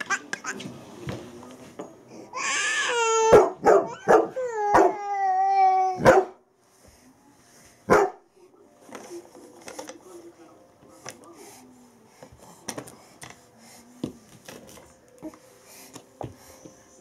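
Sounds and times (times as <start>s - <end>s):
dog barking: 3.3s - 5.0s, 6.0s - 6.4s, 7.9s - 8.2s.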